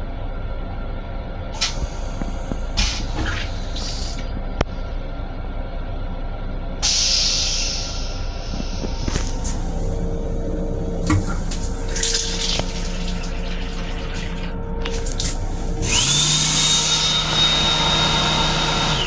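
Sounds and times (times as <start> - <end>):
hand dryer whining: 11.0 - 19.0
water running into a sink: 11.1 - 15.4.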